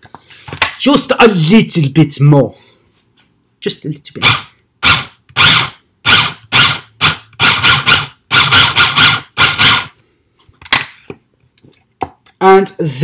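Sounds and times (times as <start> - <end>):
electric food chopper whirring: 4.3 - 9.9.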